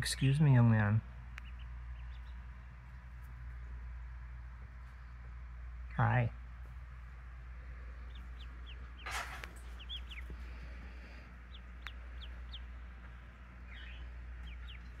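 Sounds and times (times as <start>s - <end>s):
ducklings peeping: 0.0s - 15.0s
brief rustle: 9.0s - 9.8s.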